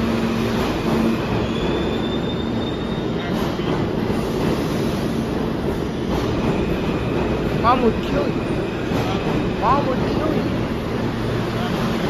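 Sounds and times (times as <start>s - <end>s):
train wheels rumbling on rails: 0.0s - 12.0s
high wheel squeal: 1.0s - 3.3s.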